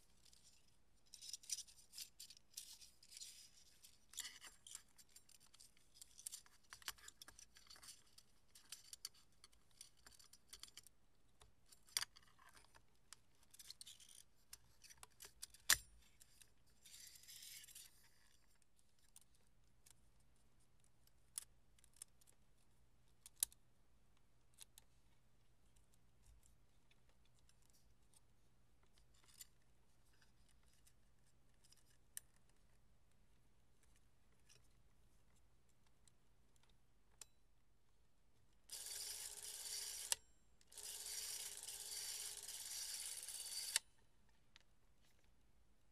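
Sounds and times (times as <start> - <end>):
small metal clicks: 0.2 - 10.9, 11.7 - 20.0, 23.2 - 23.6, 28.8 - 30.9.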